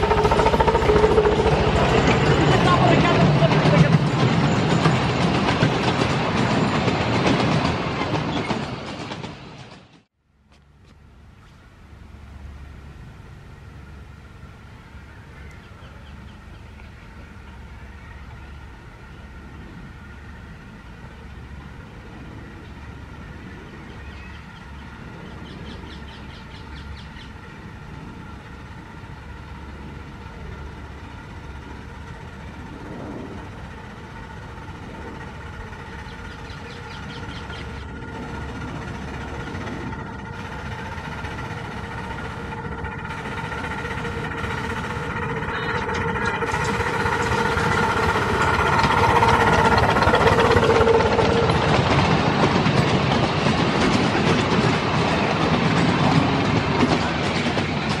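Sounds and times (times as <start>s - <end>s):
miniature train running: 0.0s - 10.0s, 24.3s - 58.0s.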